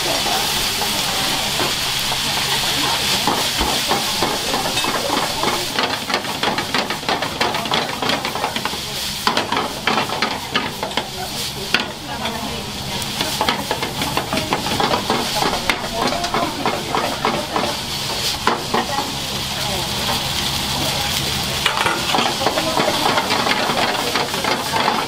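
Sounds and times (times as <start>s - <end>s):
food sizzling in frying pans: 0.0s - 25.0s
metal utensils scraping pans: 2.8s - 11.1s, 21.6s - 25.0s.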